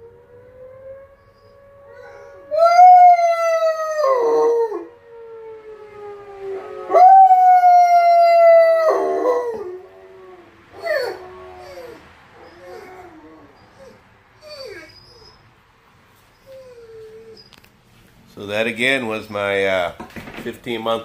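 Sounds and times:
dog howling: 0.0 - 15.4
distant siren falling tone: 0.0 - 15.5.

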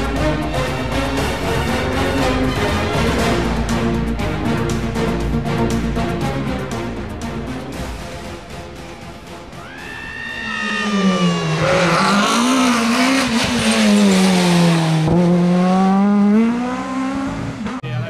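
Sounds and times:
rally car engine revving: 9.6 - 18.0.

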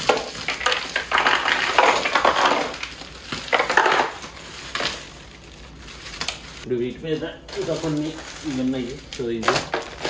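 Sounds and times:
ice cubes clattering: 0.0 - 5.0
plastic bag crinkling: 0.0 - 10.0.

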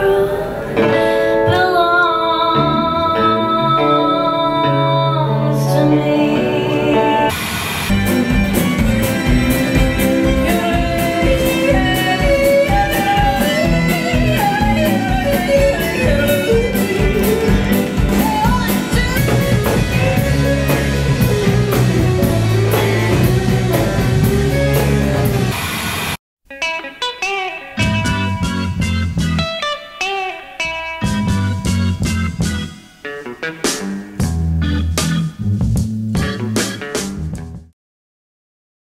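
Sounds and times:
person singing: 0.0 - 7.3, 9.3 - 25.2
guitar: 0.0 - 37.7
deep sustained bass notes: 7.9 - 25.6, 27.8 - 29.5, 31.0 - 32.7
drum beat: 7.9 - 25.6, 31.0 - 32.8.

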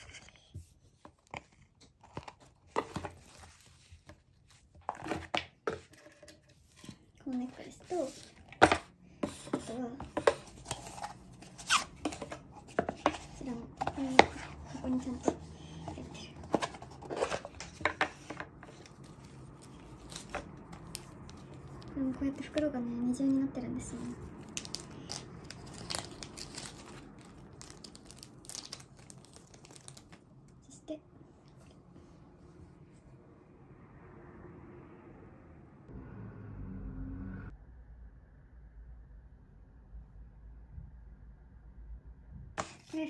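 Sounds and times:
plastic bag crinkling: 24.4 - 30.3.

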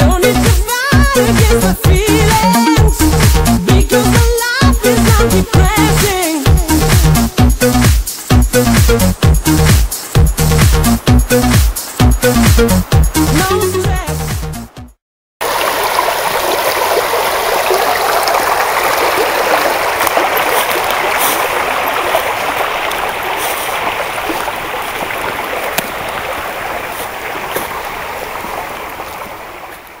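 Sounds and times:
brook flowing over riffle: 15.4 - 30.0.

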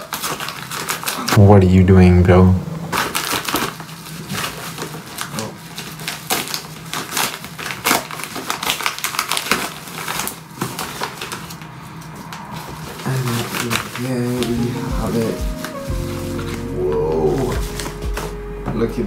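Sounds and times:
bag tearing rips: 0.0 - 1.4, 2.9 - 11.8
mailing bag crinkling: 0.0 - 1.4, 2.9 - 18.4.

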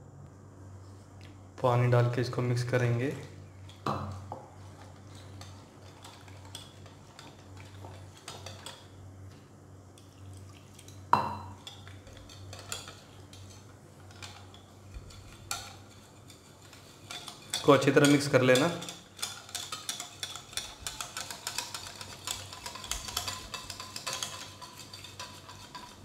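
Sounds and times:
whisk scraping a ceramic bowl: 3.1 - 9.0, 11.6 - 26.0.

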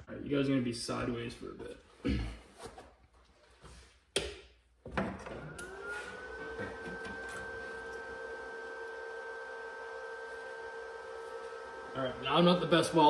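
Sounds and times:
welder cooling fan whirring: 5.3 - 13.0.

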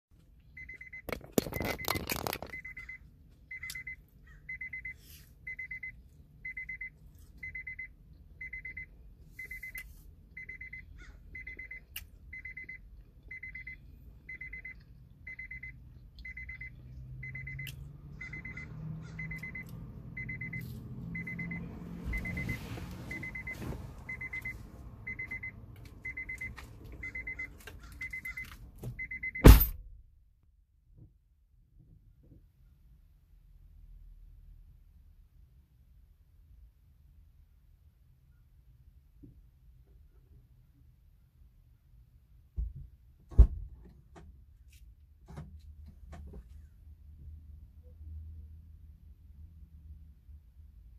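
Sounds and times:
electronic beeper beeping: 0.6 - 8.8, 10.4 - 29.7
loud thump: 29.4 - 29.9.

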